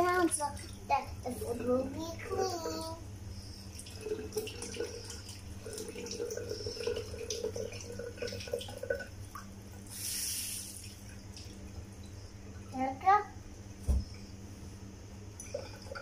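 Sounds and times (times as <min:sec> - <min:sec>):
tap water running: 0:00.0 - 0:13.2, 0:15.3 - 0:16.0
water splashing and dripping: 0:10.7 - 0:12.2.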